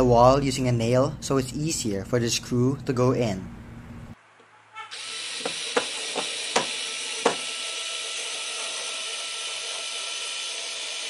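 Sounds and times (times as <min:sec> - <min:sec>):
electric screwdriver motor whine: 0:04.9 - 0:11.0.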